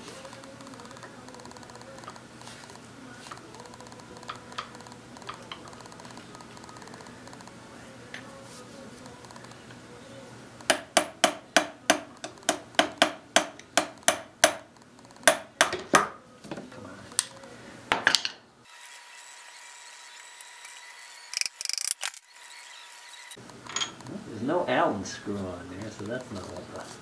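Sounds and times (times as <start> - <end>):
hammer striking metal: 10.7 - 14.6.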